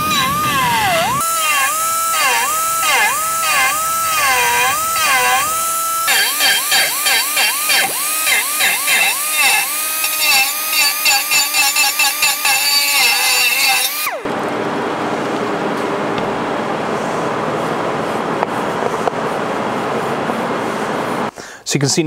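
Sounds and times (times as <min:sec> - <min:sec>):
die grinder grinding aluminum: 0:00.0 - 0:14.5.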